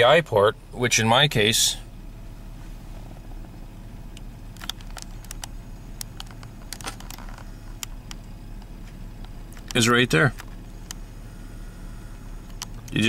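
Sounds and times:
truck engine idling: 0.0s - 13.0s
light clicks and taps: 4.2s - 11.0s.

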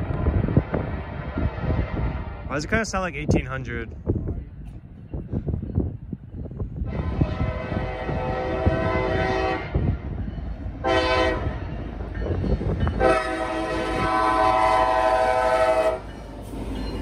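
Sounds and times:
locomotive air horn blasts: 6.8s - 9.9s, 10.8s - 11.6s, 12.9s - 16.1s.

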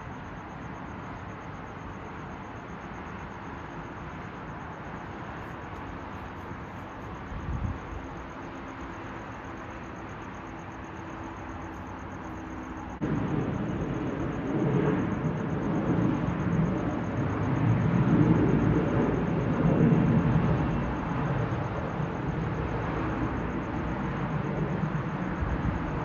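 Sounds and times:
distant jet engines roaring: 0.0s - 26.0s.

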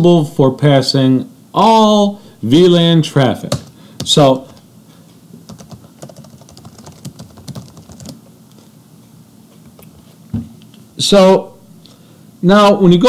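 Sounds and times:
keyboard typing: 5.5s - 8.2s.

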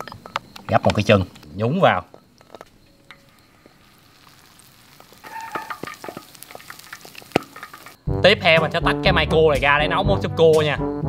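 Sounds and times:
crackling pops of oil: 2.4s - 8.0s
food deep-frying in hot oil: 3.1s - 8.0s.

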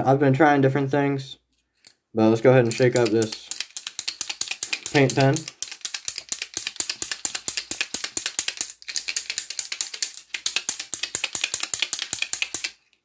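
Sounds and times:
paint pen ball rattling: 2.6s - 13.0s.

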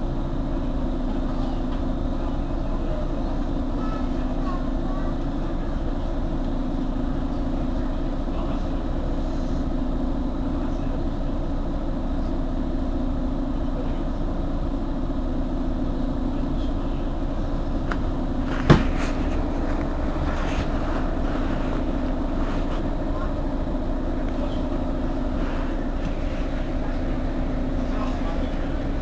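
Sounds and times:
bus engine idling: 0.0s - 29.0s
sharp knock: 18.6s - 19.0s.

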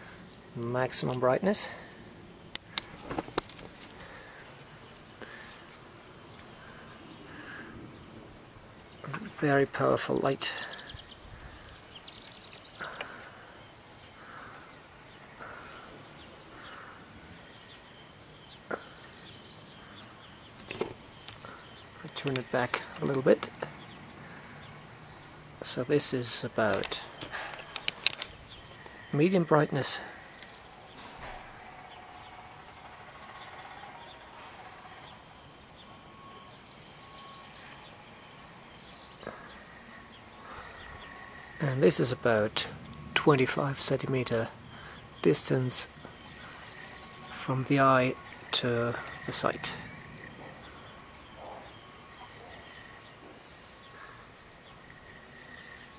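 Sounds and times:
distant birds chirping: 0.0s - 55.9s.

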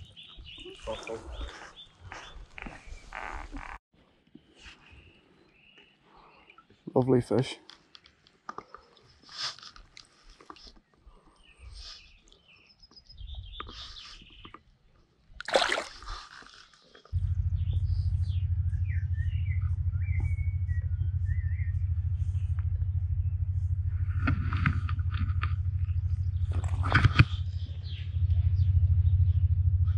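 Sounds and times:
songbirds calling: 0.0s - 3.8s, 4.4s - 15.0s, 15.6s - 29.7s
water splash: 15.4s - 16.6s
pulsing low hum: 17.1s - 29.9s.

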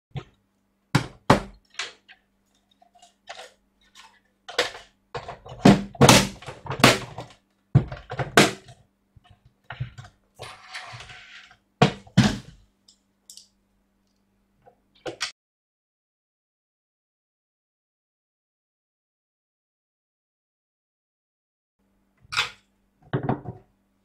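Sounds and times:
plastic housing knocks and clunks: 23.1s - 23.7s.

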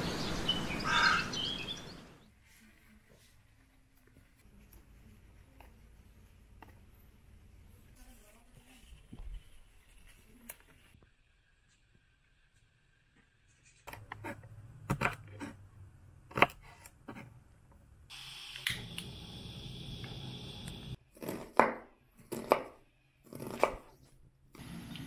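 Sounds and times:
steady hiss: 18.1s - 21.0s
knife chopping on wooden board: 21.2s - 23.8s.

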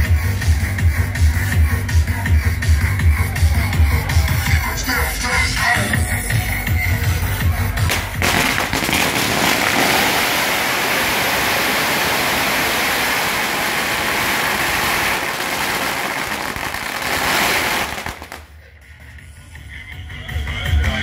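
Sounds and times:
firecrackers crackling: 5.8s - 18.7s.

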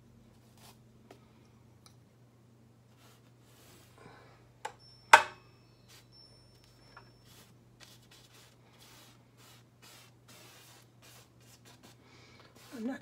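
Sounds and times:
low steady hum: 0.0s - 13.0s
brush swishing on canvas: 2.9s - 4.0s, 7.2s - 13.0s.

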